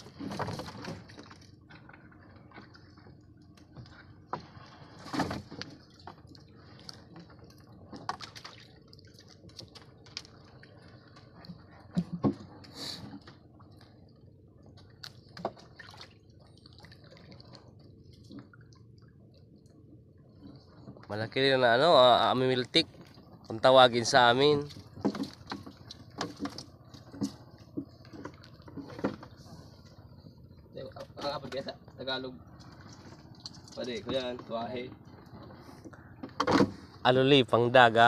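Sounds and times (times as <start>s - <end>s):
water dripping and splashing: 5.4s - 12.0s, 14.8s - 19.7s, 24.5s - 28.9s, 32.5s - 34.0s.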